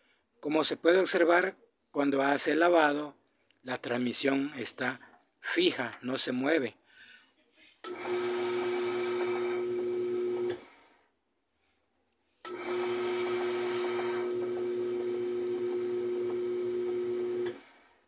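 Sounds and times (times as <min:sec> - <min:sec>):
washing machine motor humming: 0:07.9 - 0:10.6, 0:12.5 - 0:17.7.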